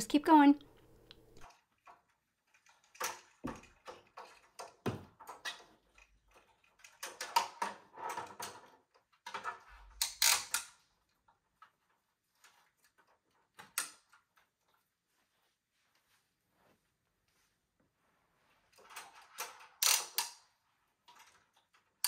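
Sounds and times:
metal hooks clicking and rattling: 18.8 - 22.0.

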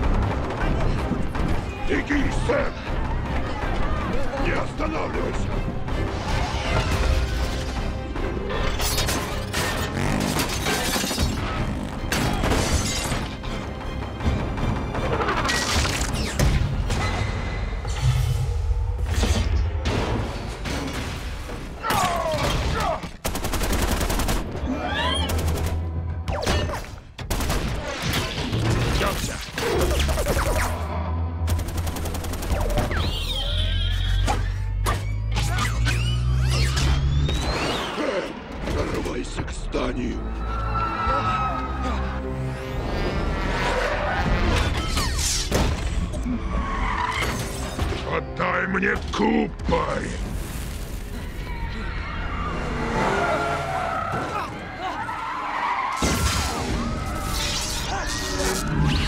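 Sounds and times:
dramatic film score: 0.0 - 59.0
machine-gun fire: 23.2 - 24.5.

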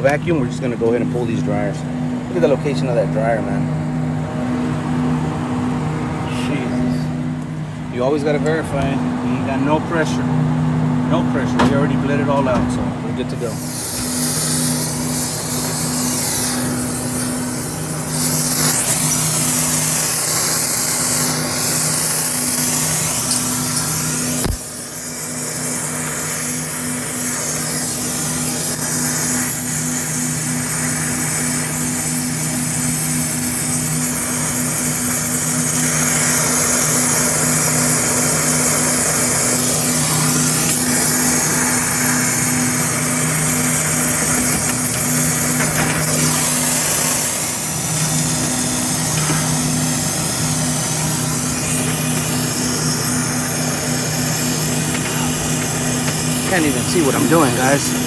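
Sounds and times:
torch flame hissing: 13.3 - 58.0.

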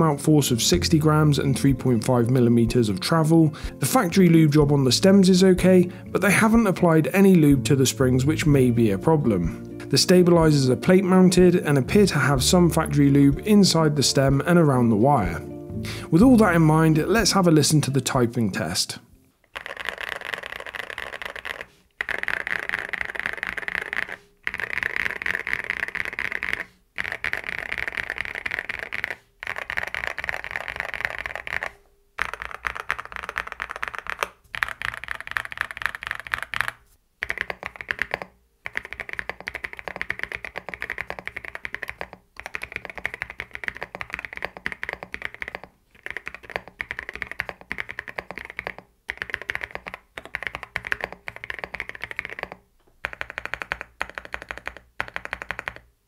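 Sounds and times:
mechanical keyboard typing: 19.5 - 55.9.

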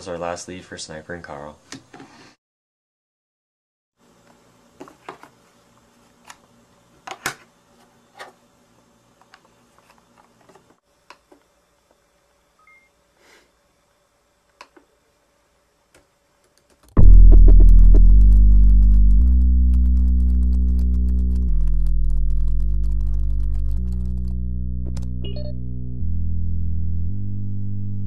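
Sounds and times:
loud synthesizer music: 17.0 - 28.0.

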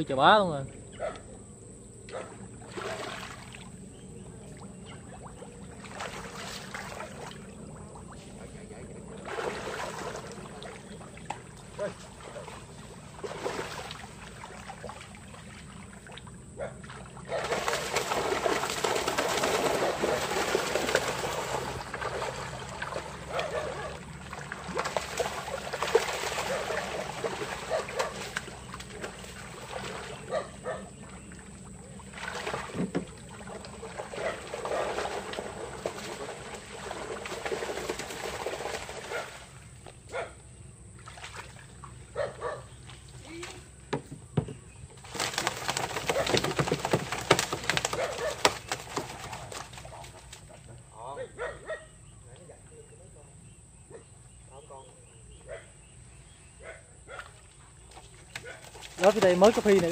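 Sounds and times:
muddy water splashing: 2.1 - 40.3, 40.9 - 43.9, 44.9 - 50.8, 57.1 - 59.9
water trickling: 58.9 - 59.9.

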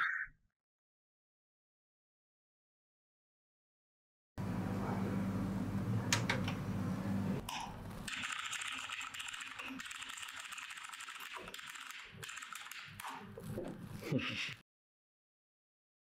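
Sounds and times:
fast keyboard typing: 8.1 - 13.3.

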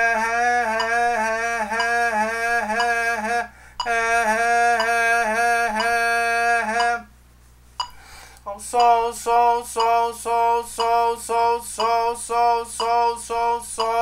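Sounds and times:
man singing a held note: 0.0 - 7.1.

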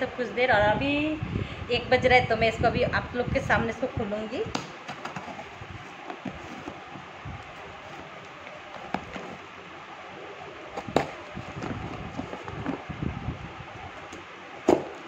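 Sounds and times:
cardboard rustling: 4.8 - 9.5, 10.7 - 13.0.

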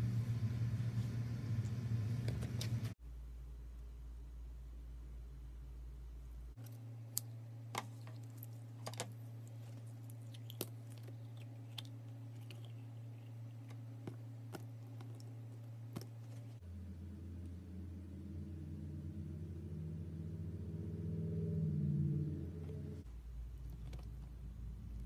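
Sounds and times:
steady low hum: 0.0 - 25.0
slime crunching and squishing: 7.1 - 16.6.

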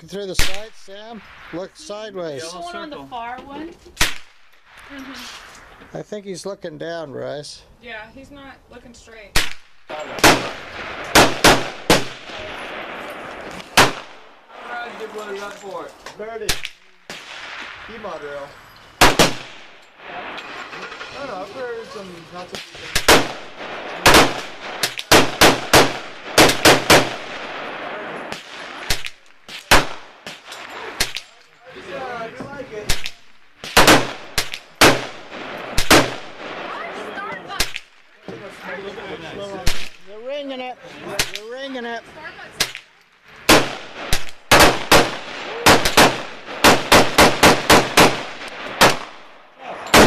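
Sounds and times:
rifle shots: 9.3 - 14.3, 19.0 - 21.0, 22.5 - 31.4, 32.8 - 36.9, 43.5 - 49.3
rapid gunshots: 9.4 - 12.5, 13.7 - 14.2, 19.0 - 19.6, 22.6 - 27.7, 32.9 - 36.8, 43.5 - 49.2.

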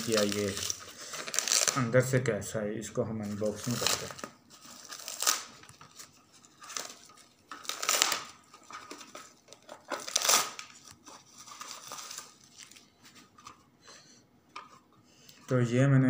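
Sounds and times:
plastic wrapping crinkling and tearing: 0.0 - 2.1, 3.1 - 13.6.

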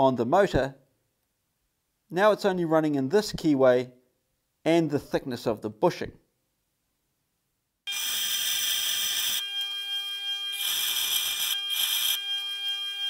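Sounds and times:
bench grinder whining: 7.9 - 13.0.

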